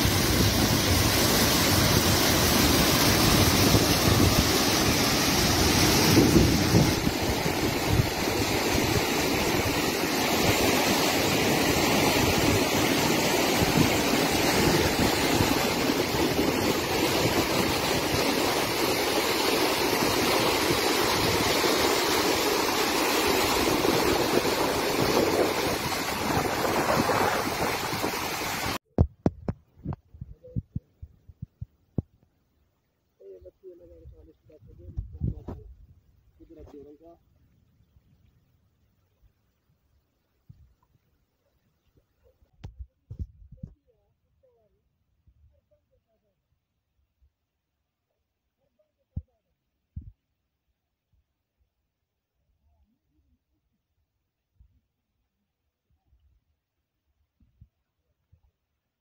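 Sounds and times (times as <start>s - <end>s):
floodwater rushing: 0.0s - 28.8s.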